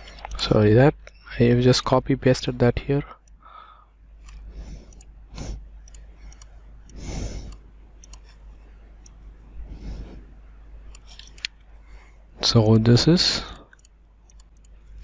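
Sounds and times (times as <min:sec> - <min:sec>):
computer mouse clicking: 0:00.0 - 0:01.3, 0:04.2 - 0:09.2, 0:10.8 - 0:12.2, 0:13.5 - 0:15.0
steady low hum: 0:00.0 - 0:15.0
soft breathy noises: 0:03.4 - 0:10.8.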